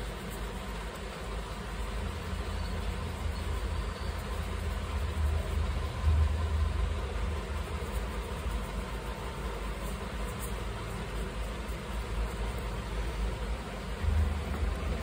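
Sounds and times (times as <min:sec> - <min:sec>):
low rumble: 0:13.8 - 0:15.0.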